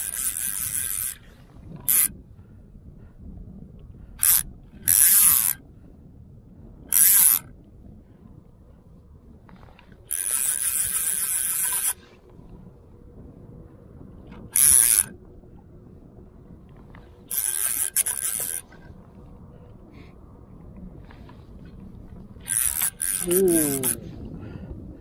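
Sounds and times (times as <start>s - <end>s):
fishing reel ratchet buzzing: 0.0s - 2.1s, 4.2s - 5.6s, 6.9s - 7.5s, 10.1s - 12.0s, 14.6s - 15.1s, 17.3s - 18.7s, 22.4s - 24.0s.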